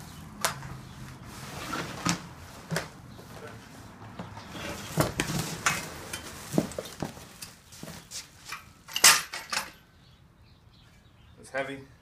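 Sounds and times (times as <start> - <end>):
bubble wrap and cardboard rustling: 0.0 - 8.4.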